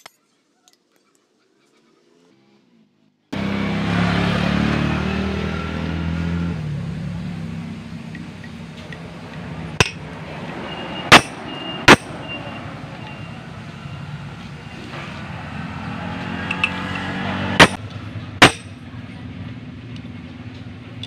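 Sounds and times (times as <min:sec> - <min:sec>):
hammer striking metal impact driver: 0:08.1 - 0:12.4, 0:16.5 - 0:18.8.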